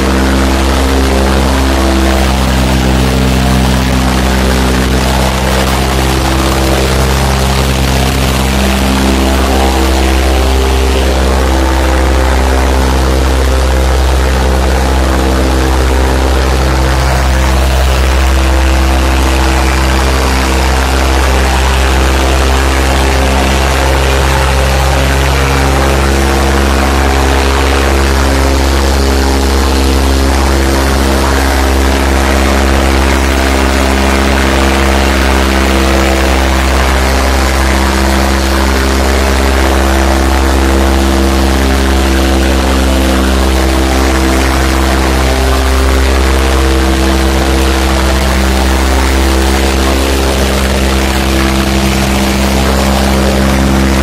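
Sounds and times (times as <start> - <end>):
tractor diesel engine under load: 0.0 - 54.0.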